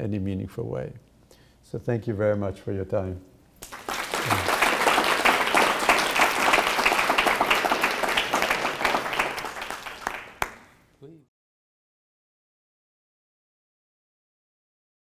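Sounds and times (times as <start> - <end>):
audience applauding: 3.6 - 10.8.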